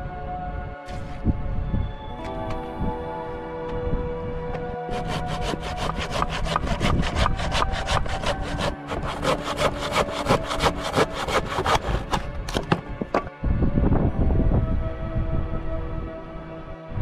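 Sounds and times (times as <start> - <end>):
hand saw cutting wood: 4.9 - 12.8.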